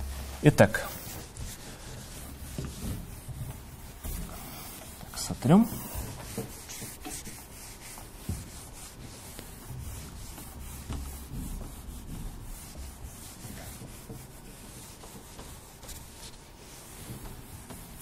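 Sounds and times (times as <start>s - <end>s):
eraser rubbing on whiteboard: 0.0s - 18.0s.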